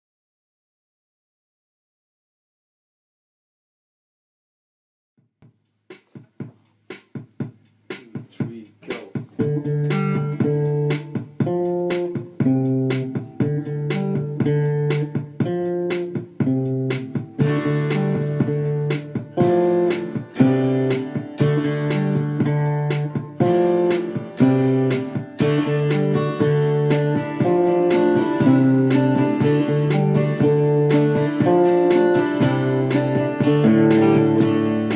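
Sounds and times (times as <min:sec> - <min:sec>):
drum machine beat: 0:05.2 - 0:34.9
acoustic guitar melody: 0:09.3 - 0:34.9.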